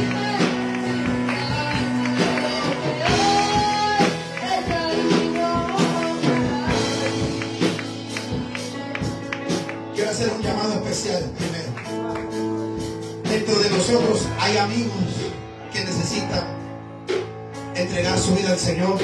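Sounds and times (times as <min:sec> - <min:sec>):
person singing: 0:00.0 - 0:11.2
keyboard chords: 0:00.0 - 0:19.0
percussion beat: 0:00.0 - 0:19.0.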